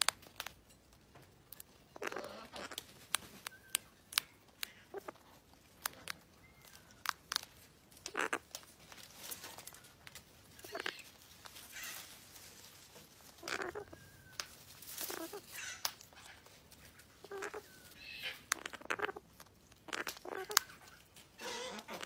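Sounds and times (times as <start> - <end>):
bird crunching food: 0.0 - 22.0
bird beak clicking: 2.0 - 5.2, 5.8 - 8.6, 18.2 - 21.0.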